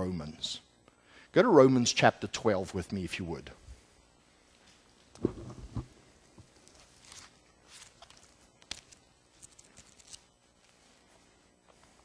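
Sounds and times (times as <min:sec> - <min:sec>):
pages being turned: 0:05.2 - 0:11.0.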